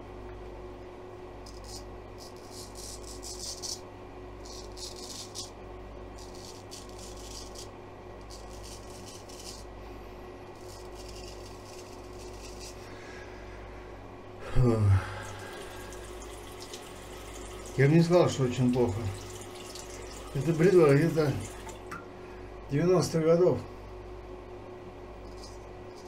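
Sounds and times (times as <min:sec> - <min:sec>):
razor scraping stubble: 0:01.4 - 0:03.8, 0:04.4 - 0:09.8, 0:10.5 - 0:12.9.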